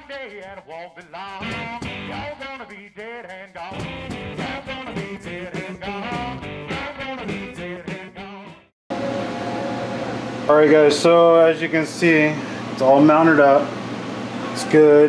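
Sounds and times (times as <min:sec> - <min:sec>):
person singing: 0:00.0 - 0:08.6
guitar: 0:01.3 - 0:02.7, 0:03.6 - 0:15.0
rock music: 0:01.4 - 0:02.3, 0:03.7 - 0:09.2.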